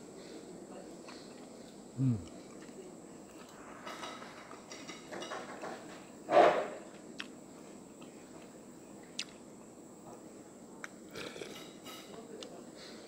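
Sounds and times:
mouth noise eating: 1.9s - 2.8s.

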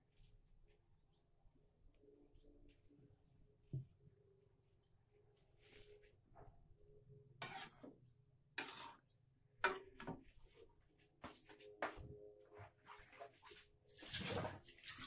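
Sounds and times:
kitchen scrapes and rustles: 7.4s - 7.9s, 8.6s - 10.6s, 12.8s - 15.0s.

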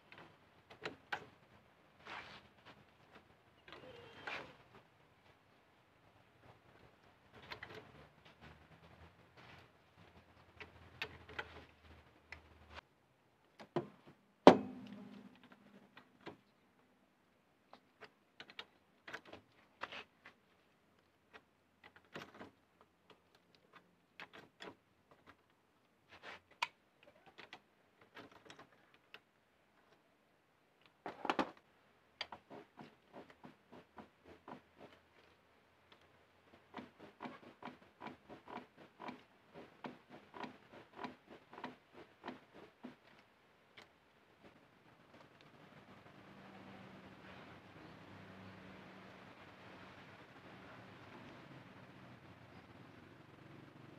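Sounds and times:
knocks on metal: 14.5s - 15.4s.

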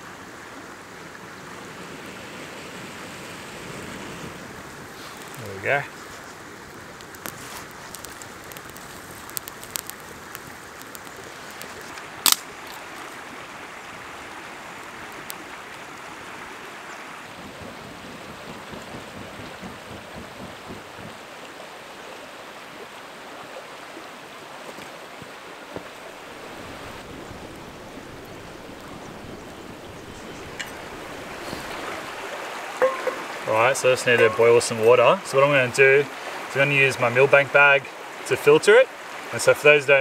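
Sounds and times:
campfire crackling: 0.0s - 22.0s, 25.1s - 39.4s
river rushing over rocks: 0.0s - 40.0s
sharp snap: 12.2s - 12.5s.

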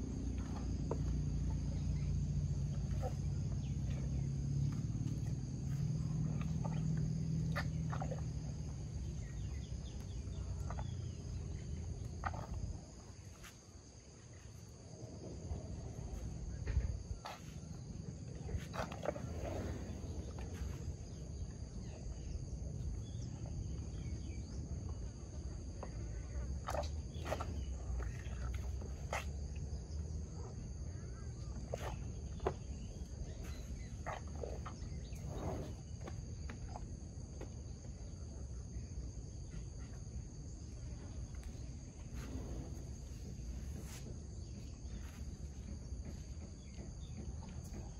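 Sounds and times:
insects droning: 0.0s - 47.9s
low rumbling noise: 14.7s - 26.3s.

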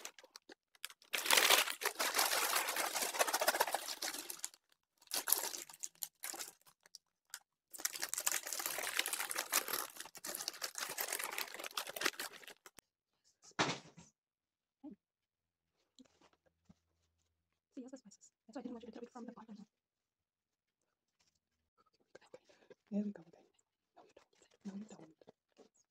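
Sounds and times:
snack bags crinkling: 0.0s - 12.8s.

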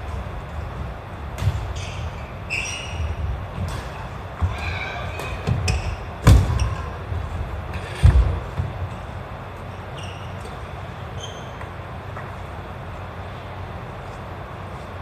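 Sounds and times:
feet thudding and squeaking: 1.4s - 7.1s, 9.8s - 11.8s
racket hitting shuttlecock: 3.6s - 6.8s.

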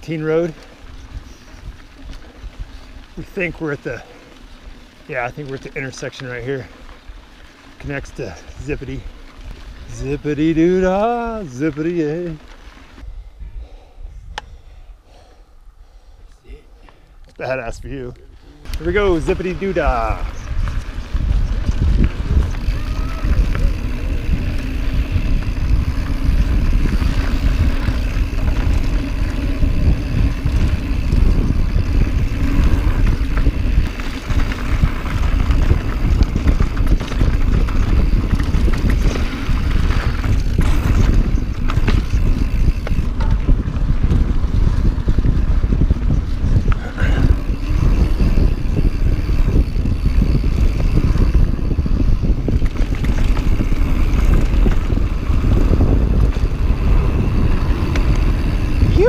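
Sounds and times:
wind rumble on microphone: 0.0s - 3.2s, 12.9s - 15.2s, 17.6s - 59.0s
bike rolling over rough ground: 0.0s - 13.1s, 17.4s - 59.0s.

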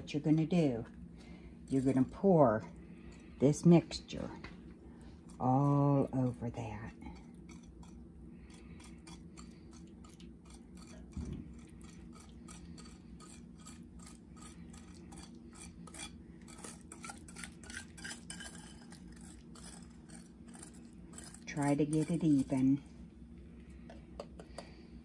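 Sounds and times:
utensil scraping ceramic bowl: 1.7s - 4.4s, 7.0s - 22.8s.

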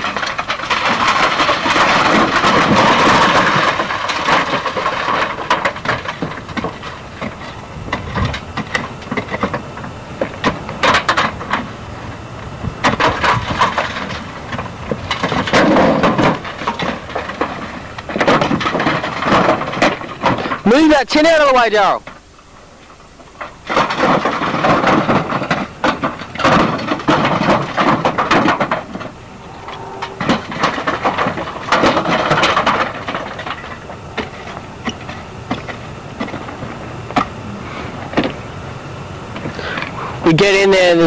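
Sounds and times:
metal knocks and bangs: 0.0s - 11.7s, 12.8s - 20.6s, 23.6s - 37.3s
sheet metal scraping and rattling: 23.7s - 34.5s.

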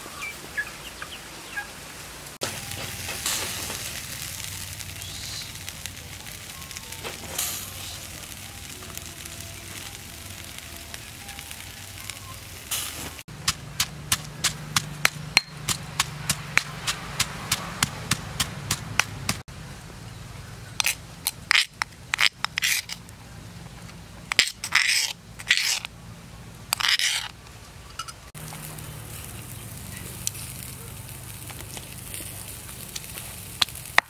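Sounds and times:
pestle pounding in a mortar: 13.4s - 19.4s.

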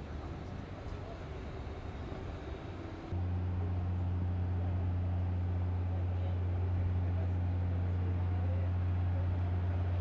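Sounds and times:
boat machinery droning hum: 0.0s - 10.0s.

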